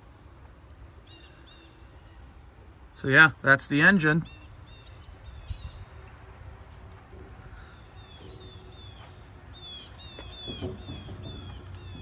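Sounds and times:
birds chirping: 0.1 - 12.0.

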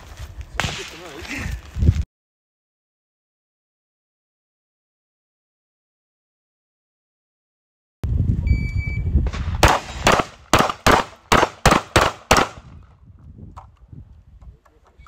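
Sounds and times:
shotgun firing: 9.3 - 12.7.

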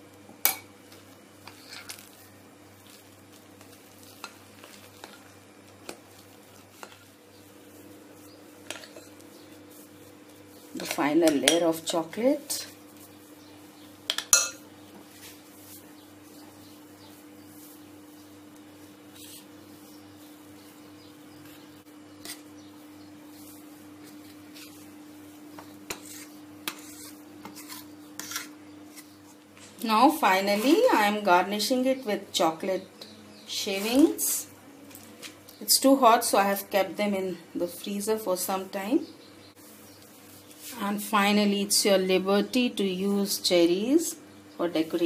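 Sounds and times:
metal spatula scraping cake tin: 25.9 - 29.2.

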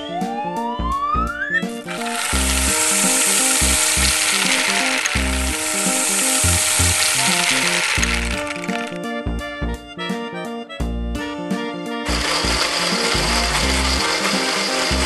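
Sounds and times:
children's music tune: 0.0 - 15.0
small balls pouring hiss: 1.9 - 9.0, 12.1 - 15.0.

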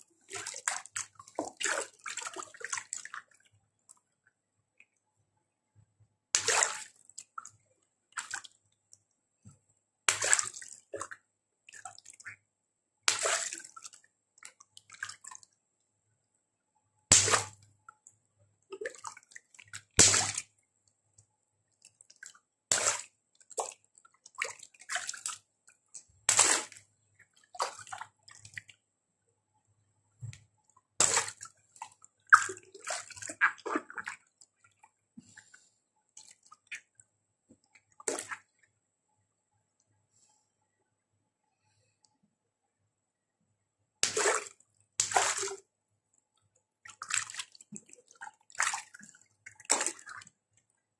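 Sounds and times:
water splashing: 10.1 - 10.7, 17.1 - 17.6, 20.0 - 20.4, 26.3 - 26.8, 31.0 - 34.8, 38.0 - 38.5, 44.0 - 45.6
water balloons popping: 17.1 - 17.6, 20.0 - 20.4
water dripping: 30.2 - 34.9.

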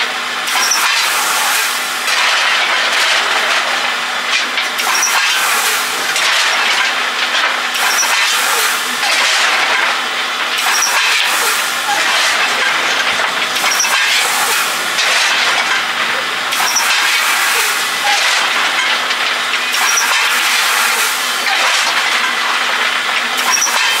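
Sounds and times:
steam locomotive hissing: 0.5 - 2.1, 4.8 - 6.2, 7.8 - 9.0, 10.6 - 18.8, 19.4 - 21.6.

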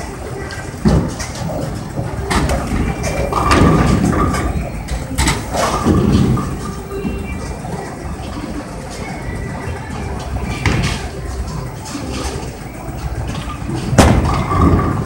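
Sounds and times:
bowling balls rumbling: 0.0 - 15.0
bowling pins crashing: 0.8 - 7.3, 13.2 - 15.0.

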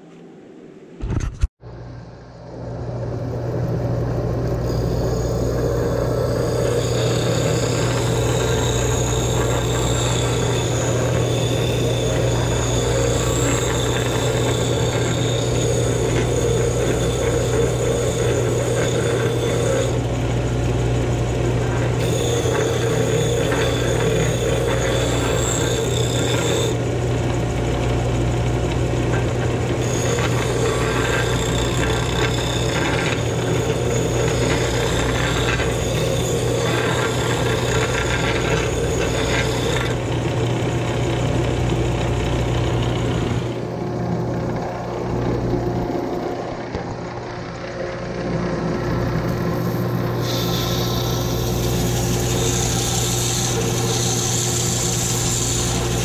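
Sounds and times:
disc sander motor hum: 2.9 - 56.0
wood being sanded: 4.7 - 20.5, 21.4 - 26.8, 29.8 - 40.0, 50.2 - 56.0.

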